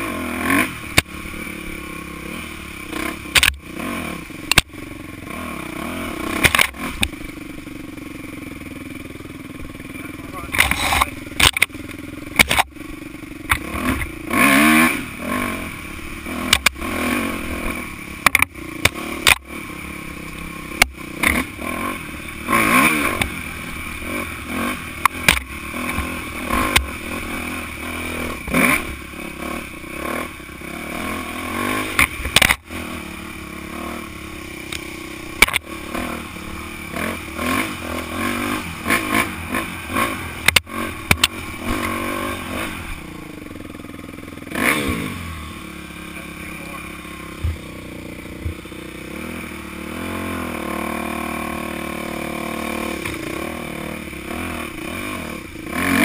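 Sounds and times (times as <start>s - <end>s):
dirt bike engine revving: 0.0s - 56.0s
sharp clatters and knocks: 10.5s - 11.8s.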